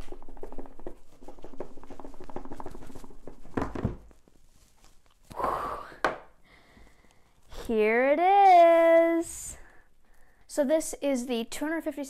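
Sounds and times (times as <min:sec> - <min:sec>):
packaging crackling and rustling: 0:00.0 - 0:05.3.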